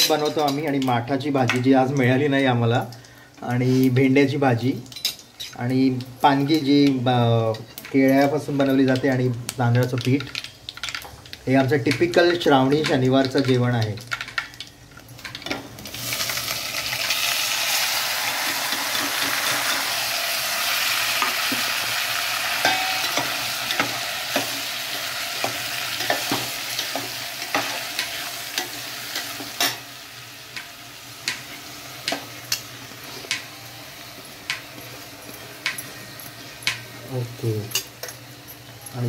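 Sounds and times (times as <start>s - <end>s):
food sizzling in hot oil: 0.0s - 39.0s.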